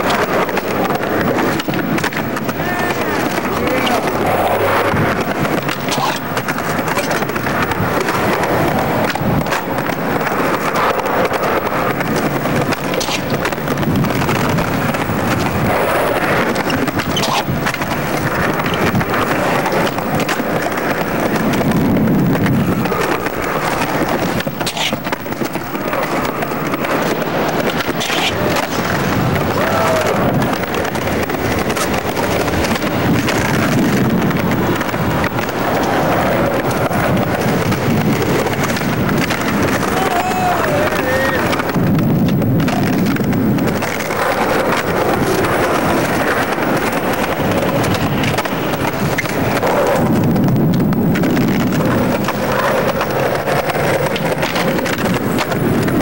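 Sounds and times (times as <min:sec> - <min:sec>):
skateboard wheels rolling on concrete: 0:00.0 - 0:56.0.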